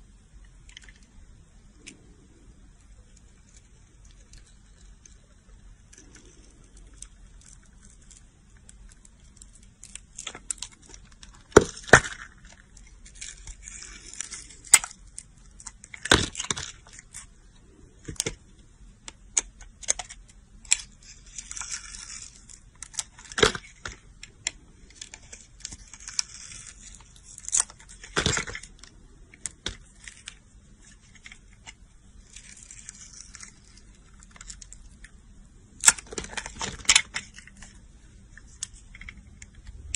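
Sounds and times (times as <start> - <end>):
sharp cracks and clicks: 19.0 - 39.9
knife blade scraping soap: 25.3 - 27.7.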